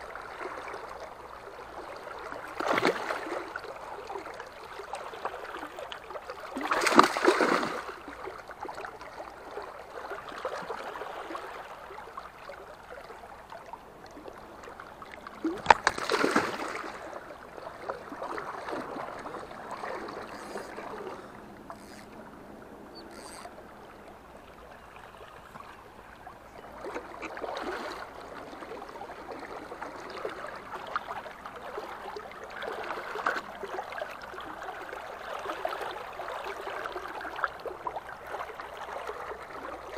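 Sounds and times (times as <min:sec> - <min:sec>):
flowing river water: 0:00.0 - 0:39.9
fish splashing at water surface: 0:06.6 - 0:07.9, 0:15.2 - 0:17.2.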